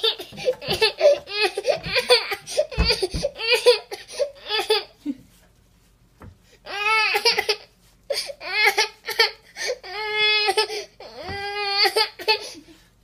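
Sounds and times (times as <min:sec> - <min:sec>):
dull thumps: 0:00.3 - 0:03.6.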